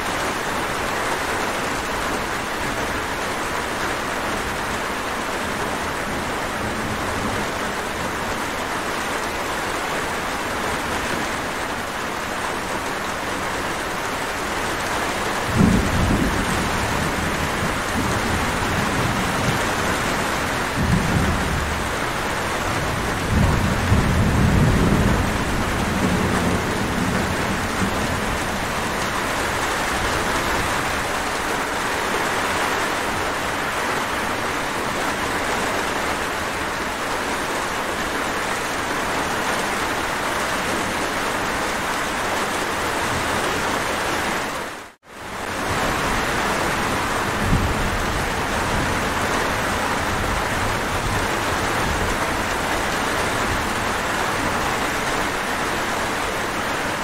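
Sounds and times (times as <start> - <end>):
heavy rain: 0.0 - 57.0
thunder rumbling: 15.2 - 31.4, 45.4 - 55.7.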